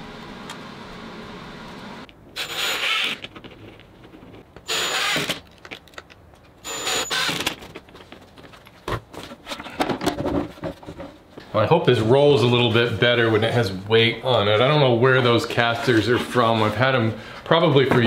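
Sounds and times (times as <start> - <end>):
cordless drill driving screws: 2.4 - 3.2, 4.7 - 5.4, 6.7 - 7.4.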